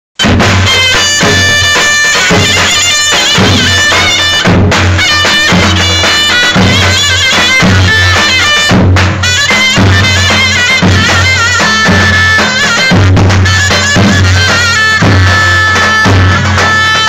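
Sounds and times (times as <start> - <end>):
shrill reed wind instrument melody: 0.2 - 17.0
bass drums beating dance rhythm: 3.3 - 6.9.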